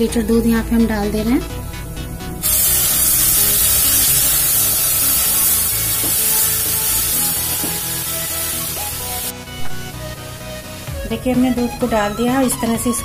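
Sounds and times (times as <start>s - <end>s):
milk hissing in hot pan: 2.4s - 9.3s.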